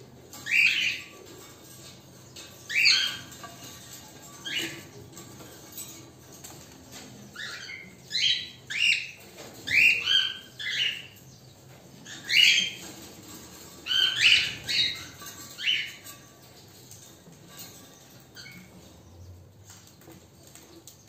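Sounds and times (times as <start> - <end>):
cockatiels chirping: 0.4 - 1.4, 2.4 - 5.0, 6.9 - 11.2, 12.0 - 13.0, 13.8 - 16.2.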